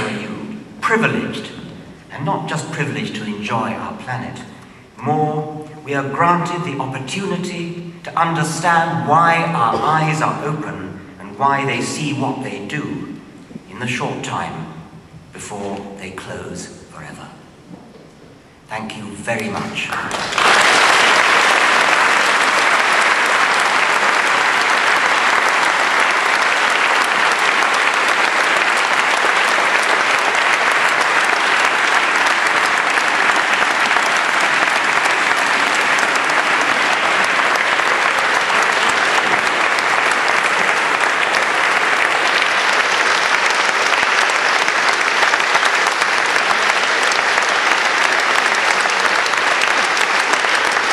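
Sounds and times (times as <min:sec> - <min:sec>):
audience applauding: 0:00.0 - 0:02.9, 0:19.4 - 0:50.9.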